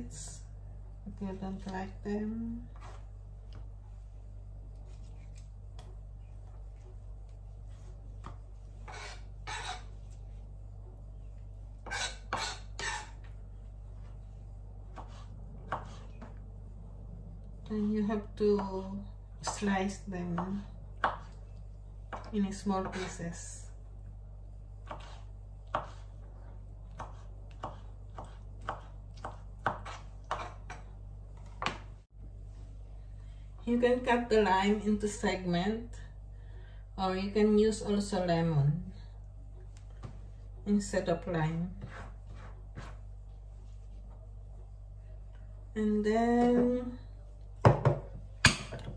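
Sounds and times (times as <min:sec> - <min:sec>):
steady low hum: 0:00.0 - 0:48.9
knife chopping on plastic board: 0:24.8 - 0:26.0, 0:26.9 - 0:30.8.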